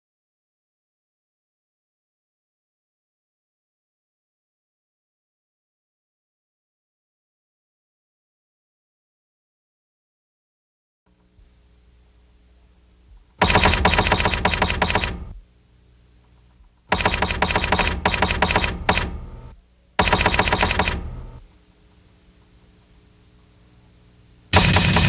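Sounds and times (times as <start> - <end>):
typewriter keys clacking: 13.5 - 15.2, 17.0 - 19.2, 20.0 - 21.1.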